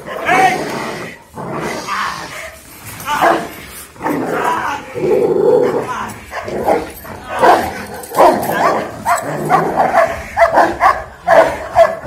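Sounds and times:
dog barking and yelping: 2.4 - 3.6, 5.4 - 12.0.

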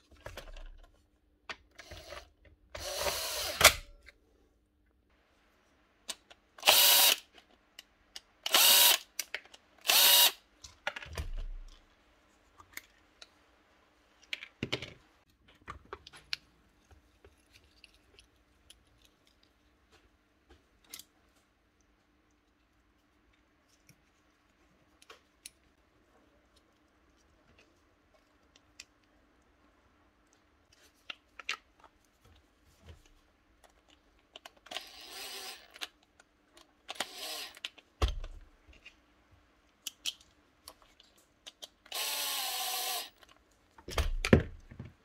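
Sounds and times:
impact driver bursts: 6.6 - 7.2, 9.9 - 10.4.

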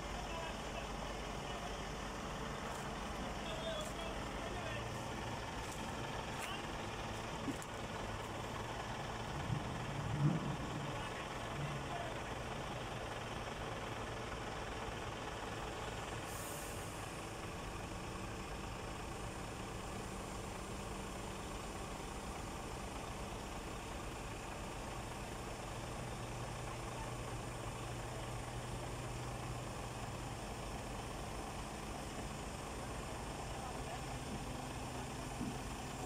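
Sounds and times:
heavy diesel engine running: 0.0 - 36.0
short hiss: 16.3 - 17.0.

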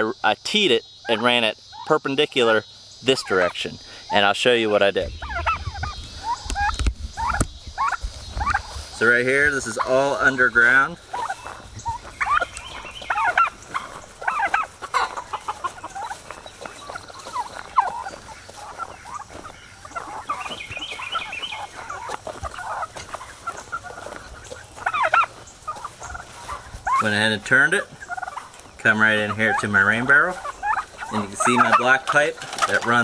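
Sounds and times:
chickens clucking: 0.0 - 33.0
turkey gobbling: 0.9 - 33.0.

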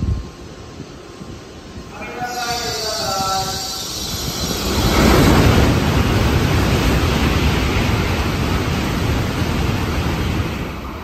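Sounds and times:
high speed train rushing past: 0.0 - 11.0.

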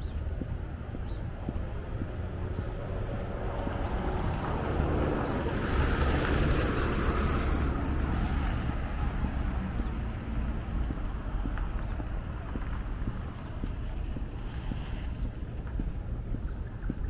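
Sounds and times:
vehicle driving past: 1.8 - 11.4.

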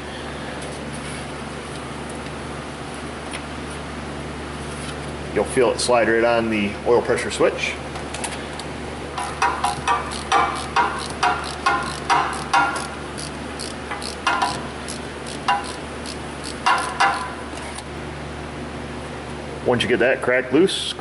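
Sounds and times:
ratchet clicking: 9.2 - 17.3.

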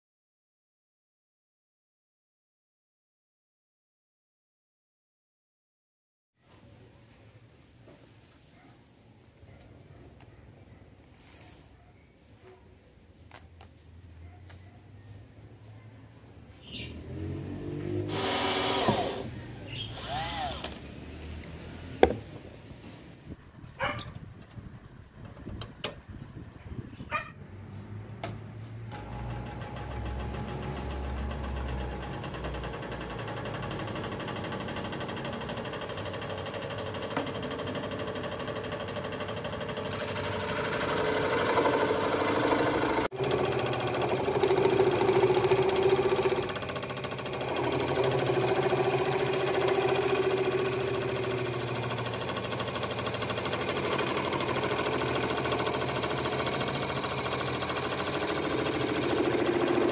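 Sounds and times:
scroll saw cutting wood: 17.0 - 21.6, 28.9 - 59.9.

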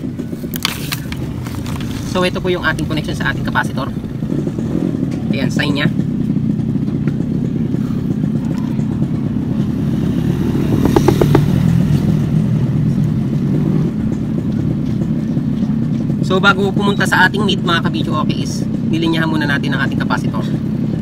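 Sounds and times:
vehicle engine rumble: 0.0 - 21.0
vehicle passing close: 9.1 - 14.1.

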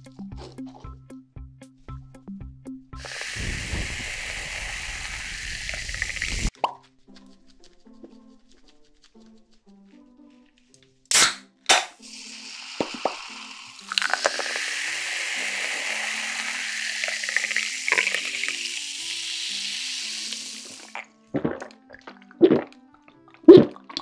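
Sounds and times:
can hissing: 3.0 - 6.6, 11.1 - 21.1
cola splashing and fizzing: 3.0 - 6.8, 12.0 - 24.0
can tab snapping open: 11.1 - 18.5.

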